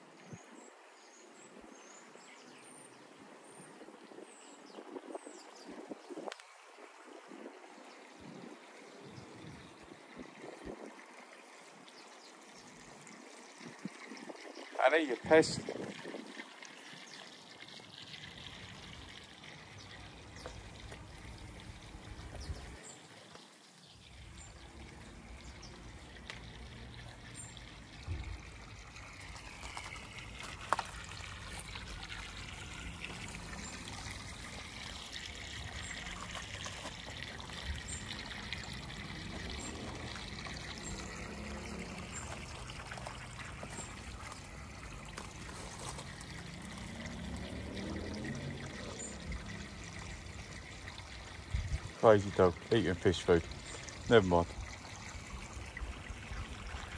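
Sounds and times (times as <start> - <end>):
water trickling into a pond: 0.0 - 56.9.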